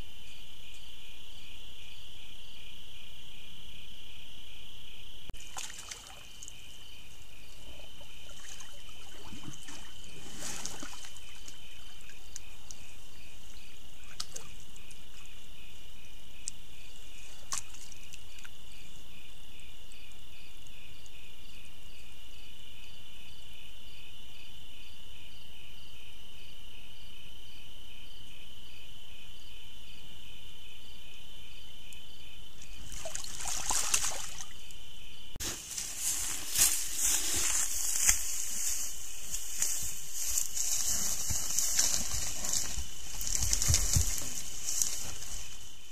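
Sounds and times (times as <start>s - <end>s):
crickets chirring: 0.0s - 45.9s
water sloshing and splashing: 5.4s - 6.6s, 8.0s - 11.6s, 32.8s - 34.5s.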